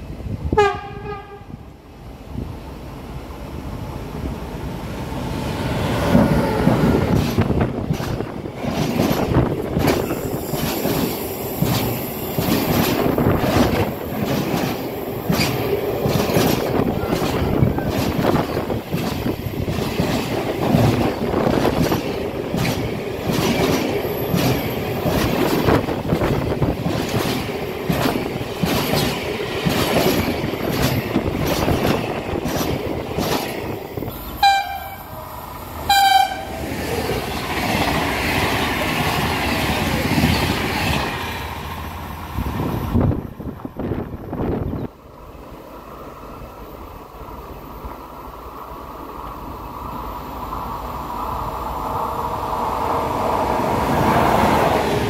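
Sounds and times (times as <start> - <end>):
freight train wheels rumbling: 0.0 - 55.0
wheels clicking over rail joints: 7.1 - 33.7.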